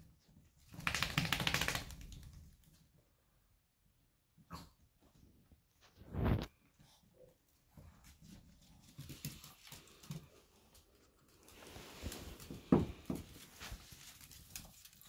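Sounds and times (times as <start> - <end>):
dog claws tapping on floor: 0.7 - 2.5.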